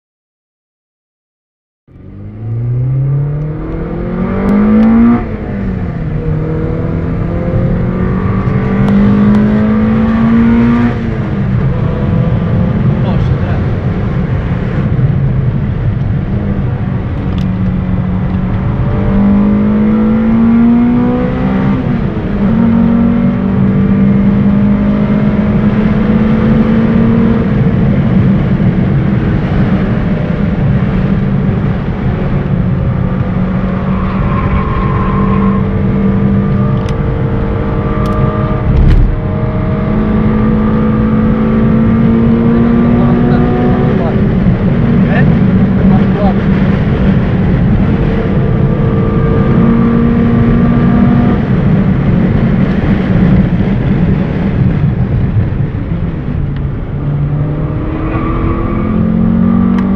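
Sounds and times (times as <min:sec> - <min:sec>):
car engine revving: 0:01.9 - 0:59.9
road and wind noise: 0:01.9 - 0:59.9
thump: 0:38.7 - 0:39.2.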